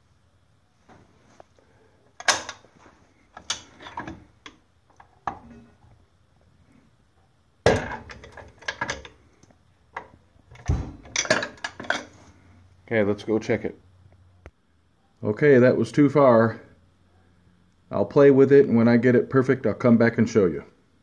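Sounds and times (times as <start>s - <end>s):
metal clattering: 10.0s - 12.2s.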